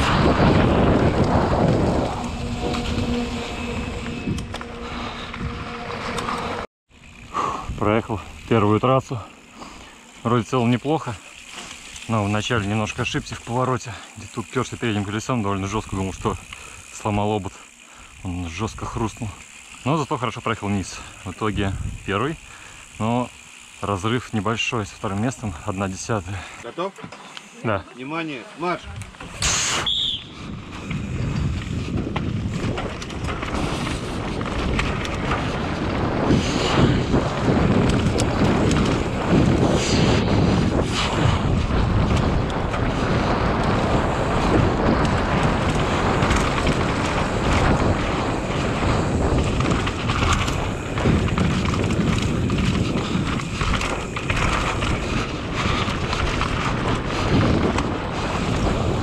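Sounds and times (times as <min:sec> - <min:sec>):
wind buffeting microphone: 0:00.0 - 0:08.5, 0:21.1 - 0:23.0, 0:30.1 - 0:59.0
bike tyres and rattling: 0:00.0 - 0:59.0.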